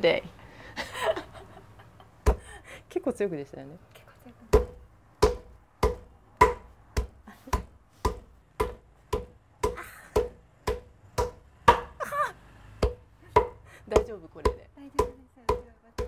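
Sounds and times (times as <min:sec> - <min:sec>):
wooden mallet beating bark: 0:02.2 - 0:02.5, 0:04.5 - 0:12.0, 0:12.8 - 0:16.0.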